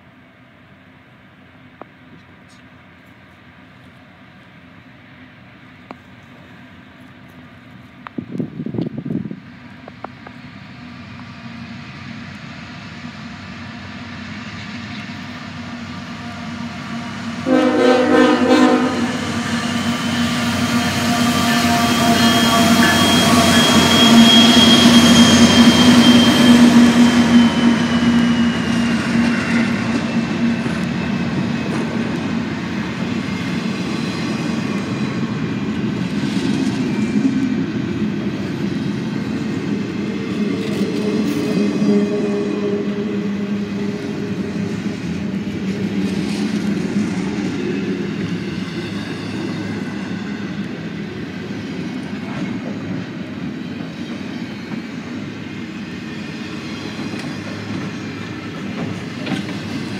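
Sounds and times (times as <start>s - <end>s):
high locomotive whine: 0.0s - 59.9s
train wheels on rails: 0.0s - 59.9s
train horn blast: 17.4s - 19.9s, 20.6s - 27.1s, 40.8s - 45.0s.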